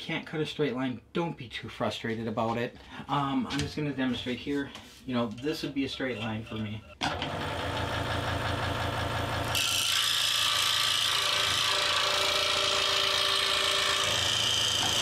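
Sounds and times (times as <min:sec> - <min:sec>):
saw cutting thin board: 0:09.5 - 0:15.0.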